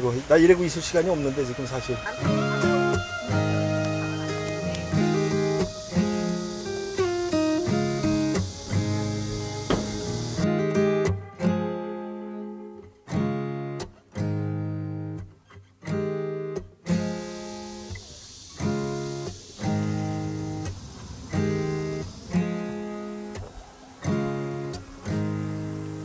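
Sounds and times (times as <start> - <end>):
acoustic guitar strummed chords: 1.0 - 26.0.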